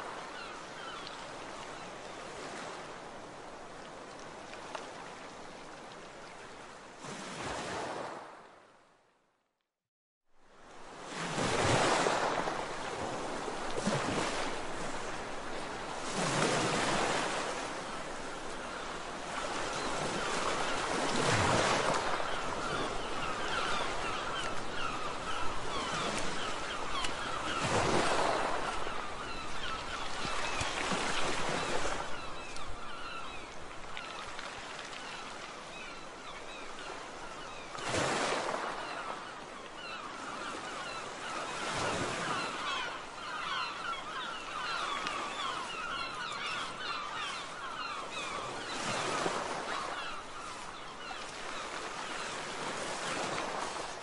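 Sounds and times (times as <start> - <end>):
waves and surf washing: 0.0 - 8.7, 10.4 - 54.0
gulls calling: 15.8 - 53.8.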